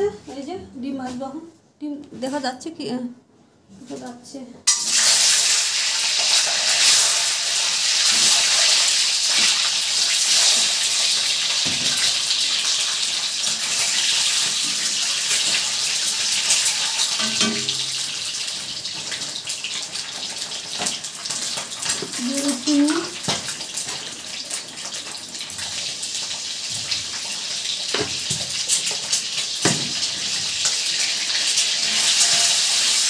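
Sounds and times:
eggs sizzling in hot oil: 0:04.7 - 0:33.0
spatula knocking against pan: 0:17.0 - 0:18.0.

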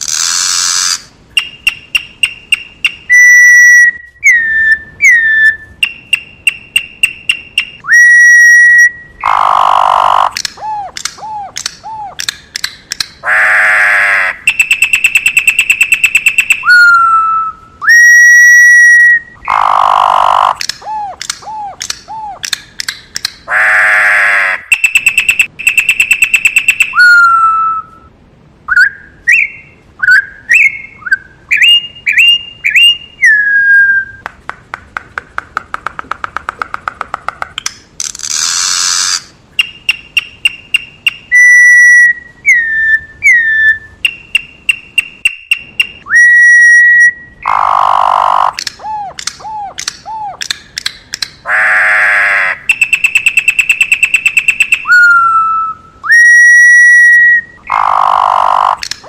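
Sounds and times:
bird whistling song: 0:00.4 - 0:12.3, 0:14.4 - 0:22.6, 0:24.6 - 0:28.1, 0:28.7 - 0:34.2, 0:39.6 - 0:50.6, 0:52.6 - 0:58.9.

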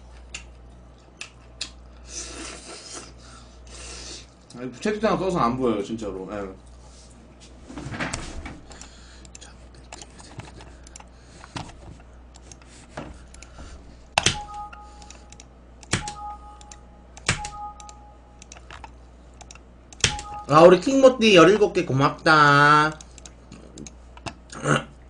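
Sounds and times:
computer keyboard typing: 0:14.2 - 0:20.6
two-note electronic beep: 0:14.3 - 0:15.3, 0:16.0 - 0:18.4, 0:20.1 - 0:20.8.

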